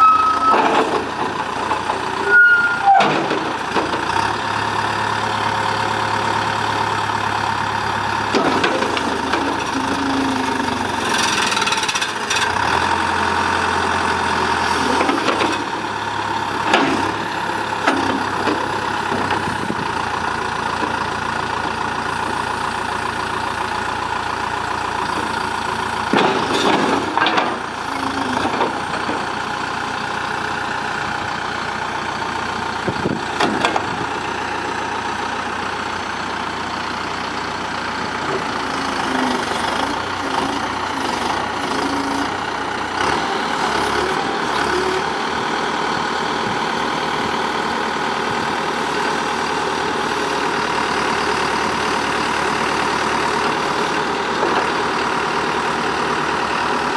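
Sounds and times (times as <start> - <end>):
diesel engine running: 0.0 - 56.9
metal clunks and knocks: 2.9 - 4.1, 8.3 - 9.6, 16.6 - 17.2, 26.1 - 27.7, 32.9 - 34.0.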